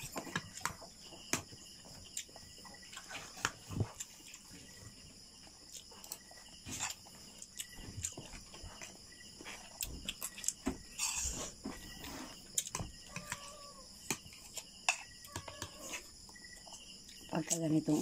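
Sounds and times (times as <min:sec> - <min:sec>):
insects chirring: 0:00.0 - 0:18.0.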